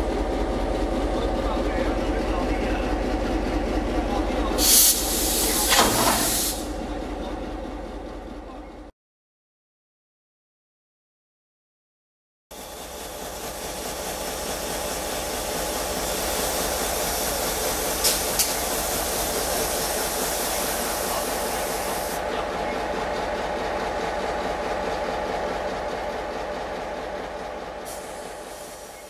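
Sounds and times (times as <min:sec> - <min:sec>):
steam hissing: 0:04.6 - 0:06.7, 0:12.7 - 0:22.2, 0:27.9 - 0:29.0.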